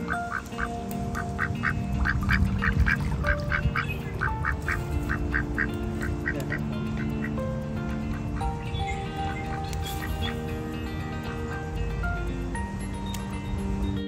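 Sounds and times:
ducks quacking: 0.0 - 10.6
background music of held notes: 0.0 - 14.0.

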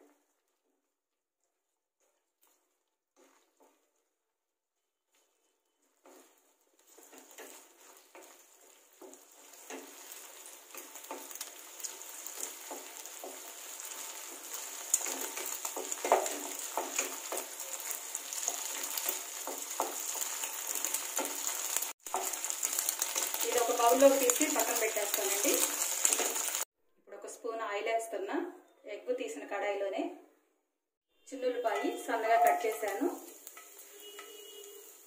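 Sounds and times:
eggs sizzling in hot oil: 0.0 - 4.5, 5.1 - 26.7, 31.3 - 35.0
spatula scraping and tapping pan: 2.0 - 4.0, 5.1 - 26.7, 31.6 - 35.0.

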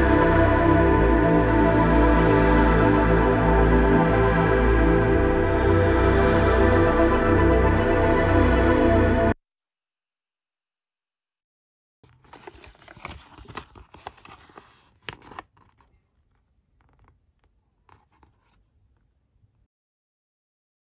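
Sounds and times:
paper leaflet crinkling: 12.0 - 18.8.

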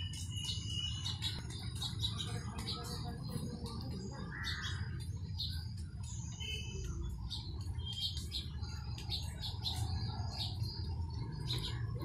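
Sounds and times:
sparrows chirping: 0.0 - 12.0.

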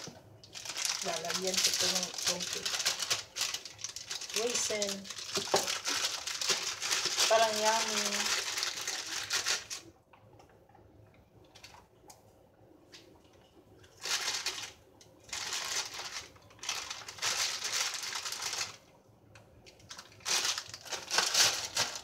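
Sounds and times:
plastic bag crinkling: 0.0 - 9.9, 13.8 - 18.9, 19.7 - 22.0.

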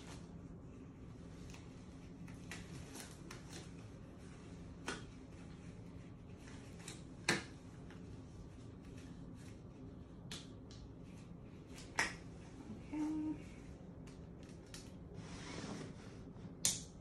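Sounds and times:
gloves snapping: 10.2 - 10.9, 16.6 - 17.0.

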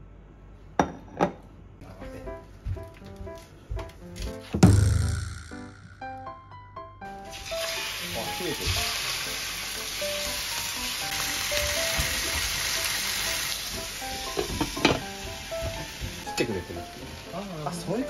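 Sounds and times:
chicken sizzling in frying pan: 7.2 - 18.0.

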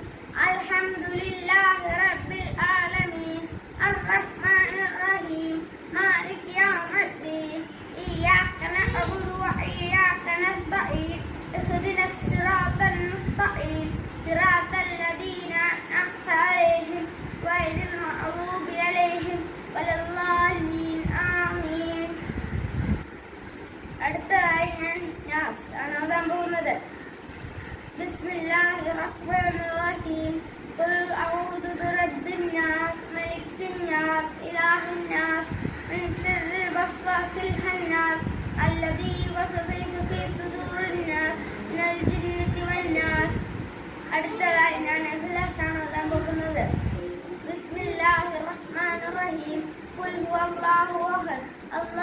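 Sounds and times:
boy singing: 0.4 - 22.3, 28.0 - 43.4, 44.1 - 52.0.

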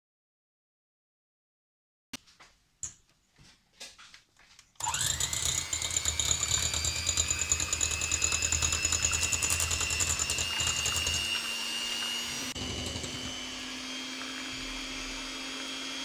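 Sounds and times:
electric hand mixer whine: 4.8 - 16.0.

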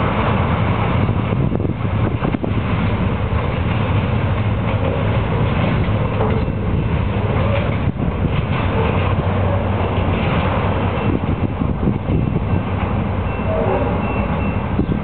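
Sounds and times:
freight train rumbling: 0.0 - 15.0
wheels squealing: 4.6 - 15.0.

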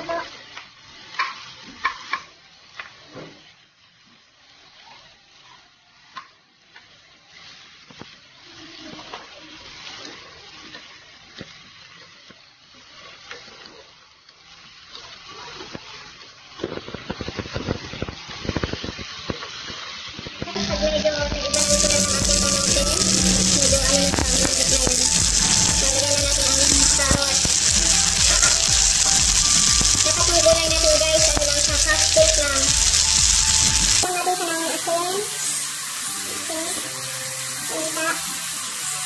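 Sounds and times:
oil sizzling: 0.0 - 39.0
wooden spatula scraping wok: 21.5 - 34.4.

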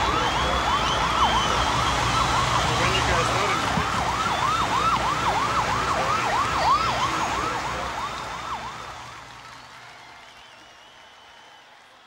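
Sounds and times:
emergency siren yelping: 0.0 - 9.0
steady noisy background: 0.0 - 11.7.

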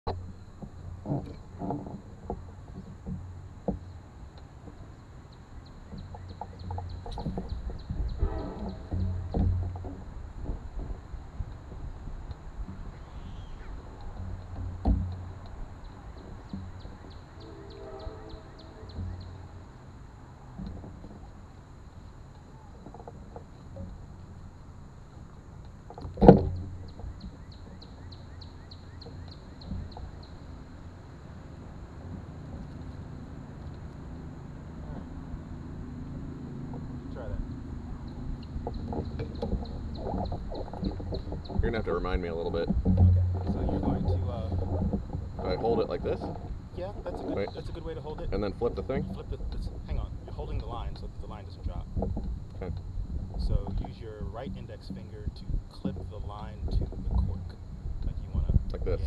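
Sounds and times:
low rumble: 0.0 - 59.0
soft knocks: 5.7 - 19.7
bird calling short falling notes: 17.4 - 19.6.

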